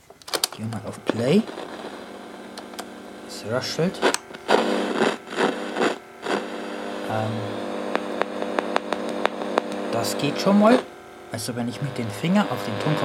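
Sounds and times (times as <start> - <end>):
amplifier hum and hiss: 0.0 - 13.0
sharp clicks from playback head: 0.2 - 2.9, 7.9 - 9.9.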